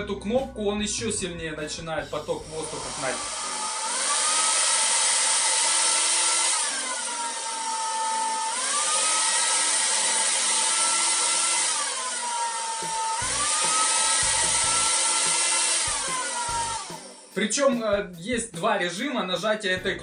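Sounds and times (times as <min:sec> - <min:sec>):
hair dryer running: 0:02.4 - 0:17.4.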